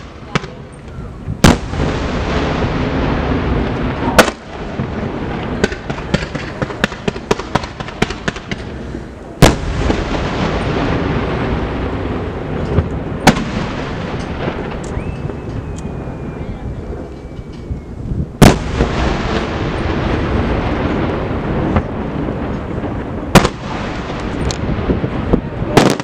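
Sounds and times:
small firework cracks: 0.0 - 8.8, 12.6 - 15.9, 21.7 - 26.0
firework loud bangs: 0.0 - 16.3, 18.3 - 26.0
rumble of echoing booms: 9.4 - 17.1.

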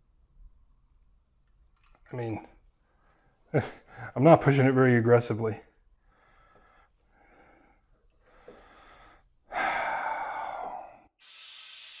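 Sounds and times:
person breathing: 2.8 - 4.2, 6.0 - 11.1.

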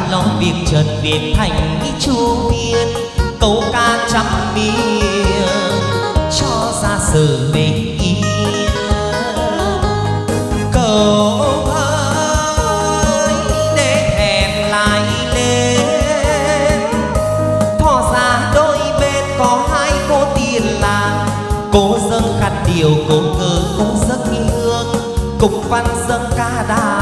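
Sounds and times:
ornamented melody: 0.0 - 27.0
person singing: 0.0 - 27.0
steady drum beat: 0.0 - 27.0.

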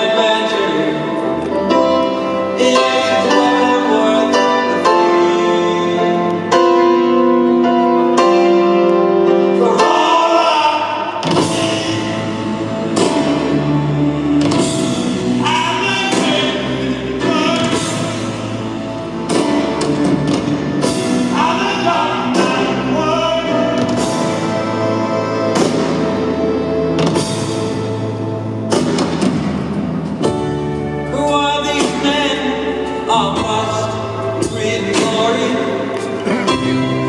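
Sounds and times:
loud music with singing: 20.8 - 26.2.

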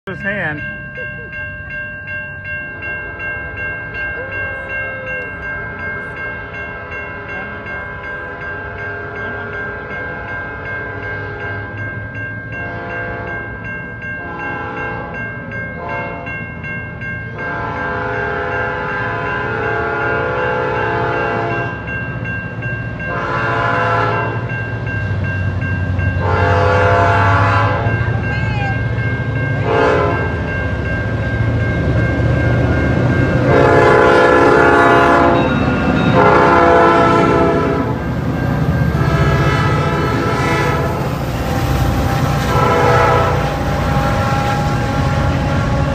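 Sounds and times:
railroad crossing bell ringing: 0.0 - 45.9
locomotive horn blasts: 12.6 - 13.4, 17.4 - 21.7, 23.1 - 24.4, 26.2 - 27.9, 29.6 - 30.4, 33.4 - 38.0, 38.9 - 45.9
locomotive engine rumble: 22.7 - 45.9.

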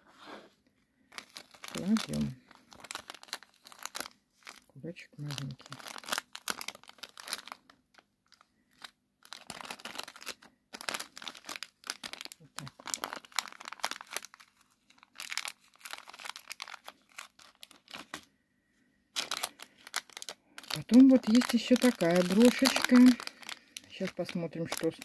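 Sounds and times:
small bag rustling: 1.1 - 4.7, 5.4 - 7.7, 8.3 - 18.3, 19.1 - 25.0.

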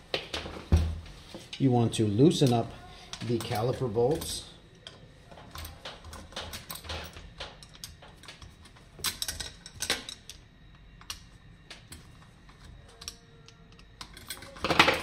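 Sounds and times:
hex key clicking on bolts: 3.4 - 10.4.

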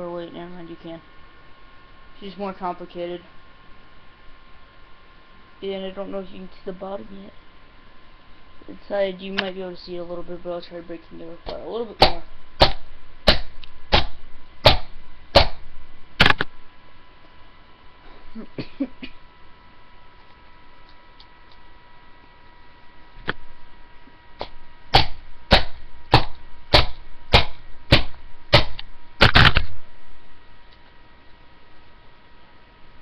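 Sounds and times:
faint steady whine: 0.0 - 33.0.

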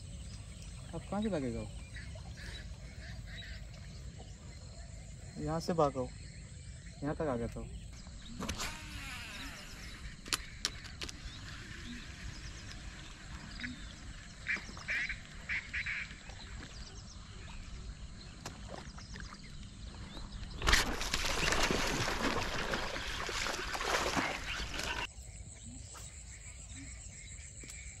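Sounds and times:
fish splashing and thrashing: 20.4 - 25.1.

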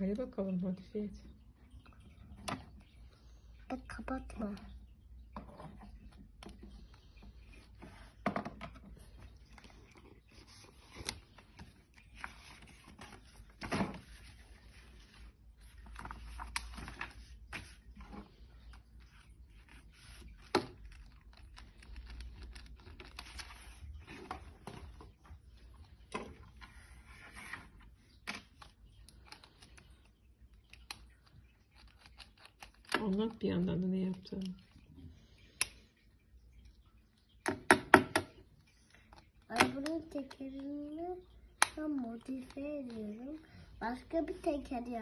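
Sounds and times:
plastic toys clicking and scraping: 5.4 - 25.2, 26.1 - 34.8
paper rustling: 5.9 - 33.4.

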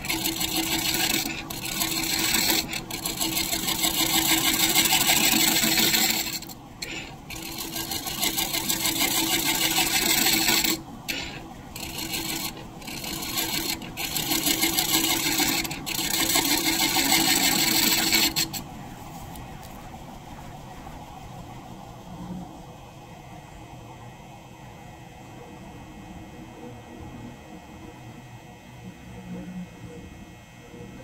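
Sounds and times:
scraper rasping on spinning wood: 0.0 - 18.7
wood lathe running: 0.0 - 18.7.

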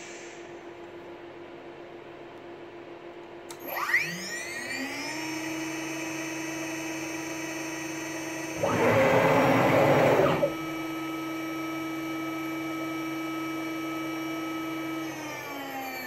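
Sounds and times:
spindle motor whine: 3.5 - 16.0
loud noise: 8.6 - 10.6.

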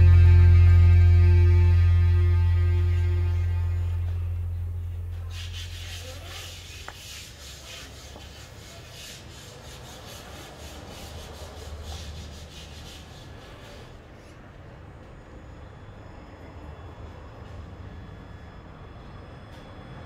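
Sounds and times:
background music: 0.0 - 4.8.

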